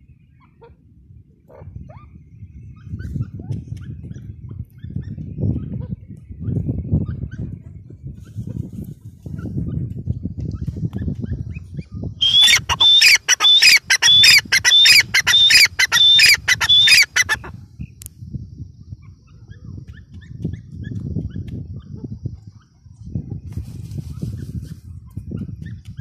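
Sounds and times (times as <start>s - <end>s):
bird harsh repeated calls: 12.2s - 17.5s.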